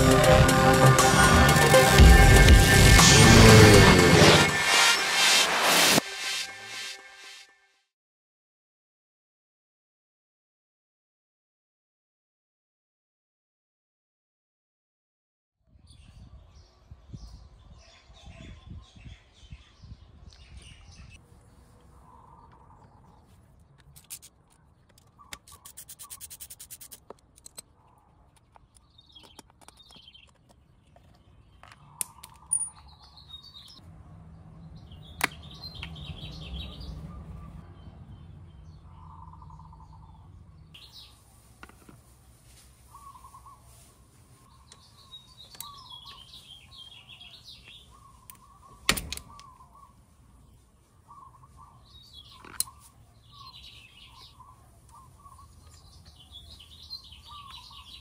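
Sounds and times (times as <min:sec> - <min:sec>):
birds chirping: 0:15.9 - 0:42.0, 0:42.8 - 0:58.0.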